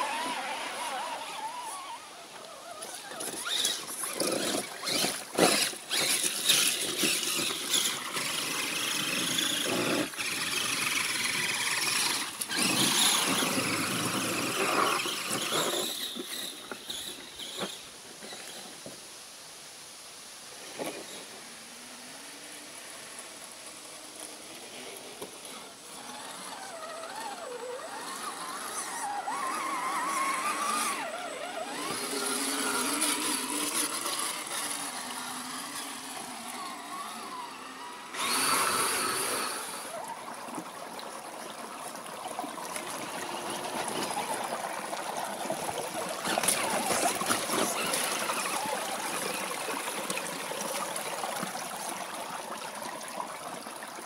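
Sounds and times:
electric motor whining: 0:00.0 - 0:17.2, 0:25.2 - 0:40.1
small stream trickling: 0:00.0 - 0:54.0.

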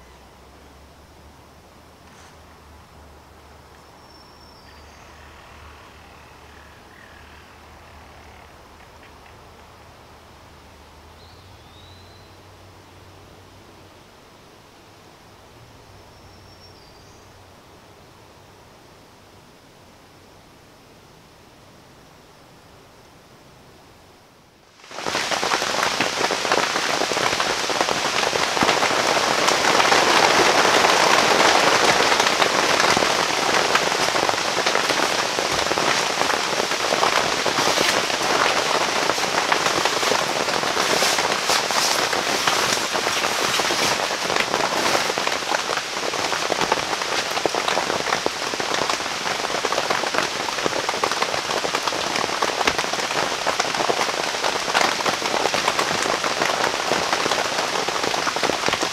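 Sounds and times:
heavy rain on tent canvas: 0:24.5 - 0:58.9.

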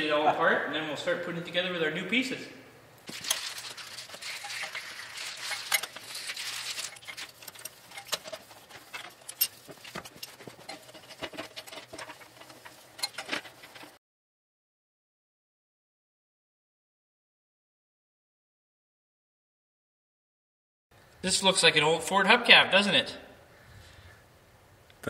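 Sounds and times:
metal tools clinking and knocking: 0:03.1 - 0:14.0.

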